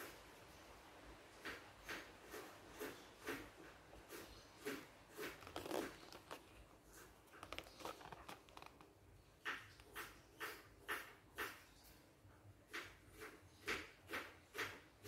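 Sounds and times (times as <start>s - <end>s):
cardboard box rustling and scraping: 5.2s - 8.9s.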